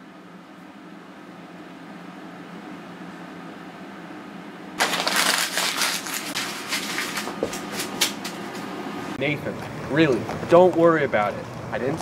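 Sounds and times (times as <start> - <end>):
paper crumpling: 4.8 - 8.5.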